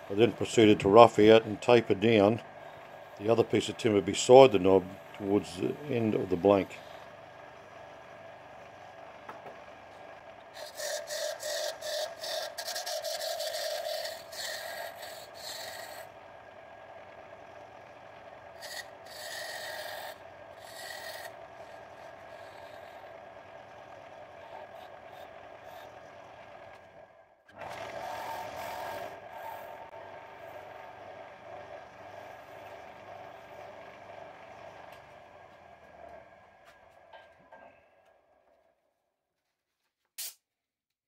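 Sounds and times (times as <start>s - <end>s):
wood lathe running: 0.0s - 37.1s
turning tool scraping wood: 10.5s - 16.1s, 18.6s - 23.3s, 24.2s - 26.8s, 27.6s - 30.8s.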